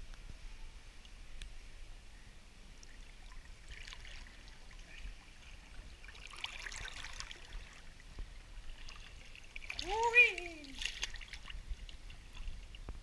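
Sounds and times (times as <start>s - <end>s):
pool water lapping: 2.7s - 12.9s.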